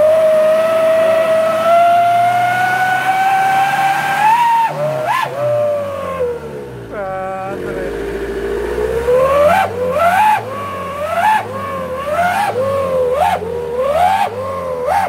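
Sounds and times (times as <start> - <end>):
howling exhaust whistle: 0.0 - 6.6, 8.8 - 15.0
engine revving: 0.0 - 15.0.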